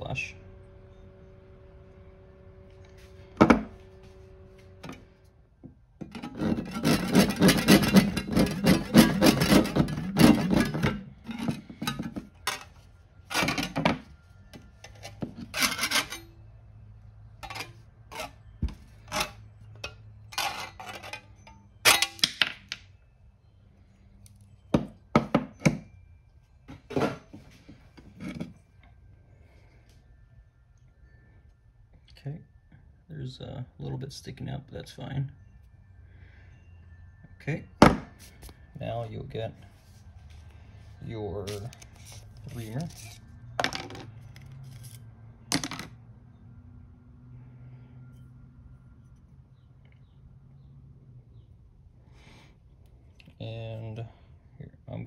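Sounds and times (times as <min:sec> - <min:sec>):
hand tool rasping metal: 0:06.0 - 0:12.6, 0:14.8 - 0:16.4, 0:41.4 - 0:43.2
tool scrapes and taps: 0:06.0 - 0:12.7.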